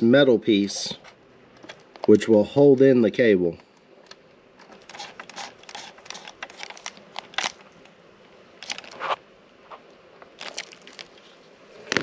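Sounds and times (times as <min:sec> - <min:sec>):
metal clicks and scrapes: 0:04.1 - 0:07.6.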